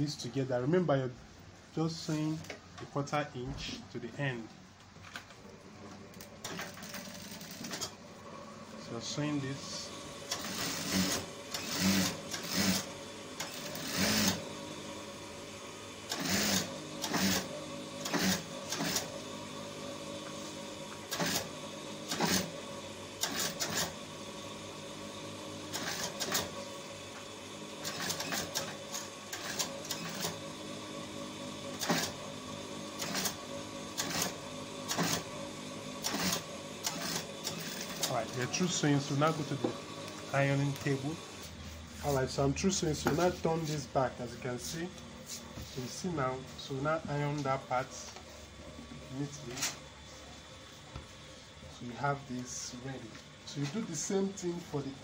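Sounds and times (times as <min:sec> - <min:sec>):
sewing machine stitching: 0:06.1 - 0:08.0, 0:10.2 - 0:14.5, 0:16.0 - 0:19.2, 0:21.0 - 0:22.6, 0:23.2 - 0:24.0, 0:25.7 - 0:26.6, 0:27.8 - 0:30.6, 0:31.6 - 0:32.3, 0:32.9 - 0:39.4.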